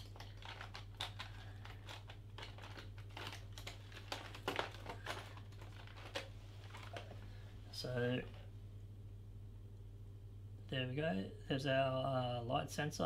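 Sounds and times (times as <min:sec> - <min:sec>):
packaging crinkling and rustling: 0:00.0 - 0:07.5
steady low hum: 0:00.0 - 0:13.0.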